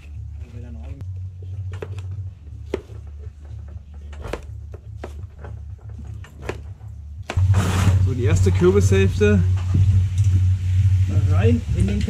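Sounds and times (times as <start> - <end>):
low rumble: 5.7 - 12.0.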